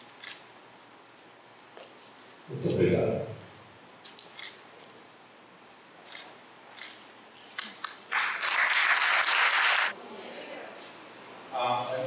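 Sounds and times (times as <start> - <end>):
audience applause: 8.1 - 10.0.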